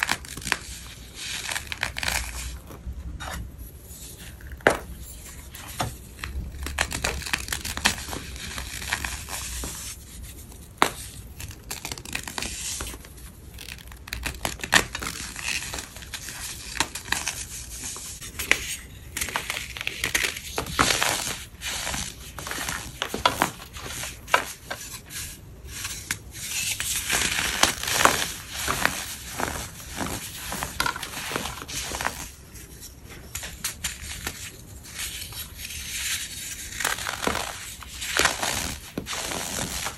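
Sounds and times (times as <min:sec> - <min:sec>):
chalky blocks crunching: 0:36.0 - 0:39.9.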